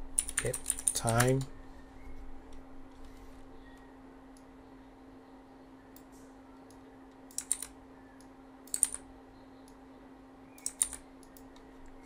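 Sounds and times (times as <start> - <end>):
faint steady hum: 0.0 - 12.0
computer keyboard typing: 0.2 - 1.5, 7.3 - 7.7, 8.7 - 9.0, 10.6 - 11.6.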